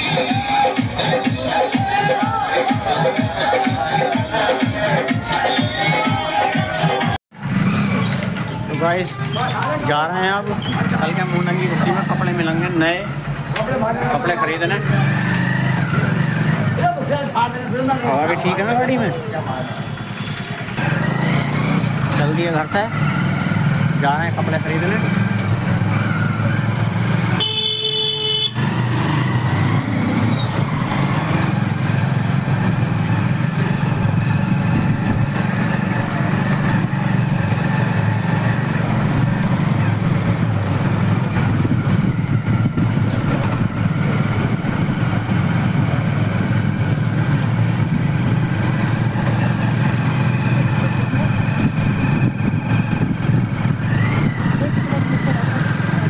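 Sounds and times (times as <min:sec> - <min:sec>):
motorcycle engine running: 0:07.4 - 0:56.0
vehicle horn beeping: 0:27.4 - 0:28.6.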